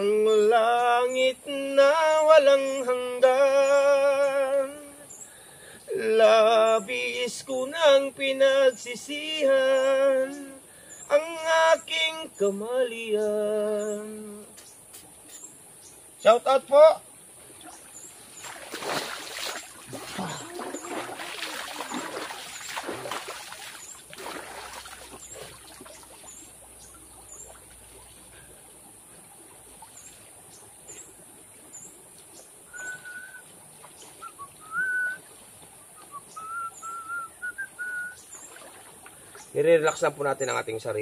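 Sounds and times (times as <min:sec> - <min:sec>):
river water splashing: 0:13.6 - 0:41.0
person whistling: 0:32.7 - 0:33.4, 0:34.2 - 0:35.2, 0:36.0 - 0:38.2.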